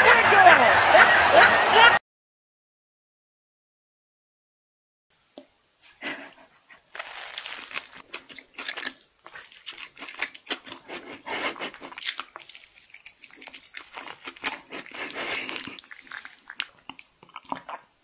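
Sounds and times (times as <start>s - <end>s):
wet chewing: 6.2s - 18.0s
crunchy bites into fried food: 6.9s - 10.8s, 11.7s - 14.8s, 15.5s - 17.8s.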